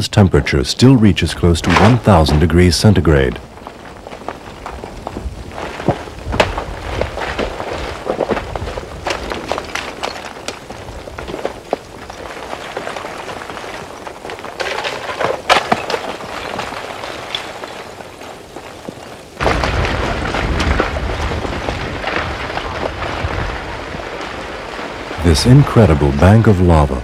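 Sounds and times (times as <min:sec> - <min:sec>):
lava blocks cracking and tumbling: 0:00.0 - 0:27.0.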